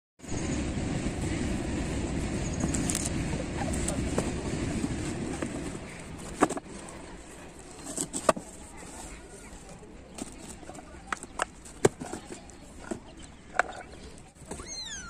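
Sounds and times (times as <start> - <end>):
low rumble: 0.2 - 6.4
cardboard box shaken and handled: 3.6 - 13.3.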